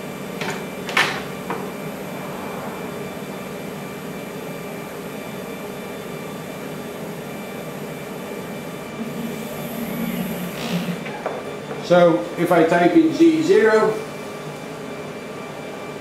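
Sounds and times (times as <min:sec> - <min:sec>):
machine mechanical hum: 0:00.0 - 0:16.0
router motor lifting: 0:09.1 - 0:11.3.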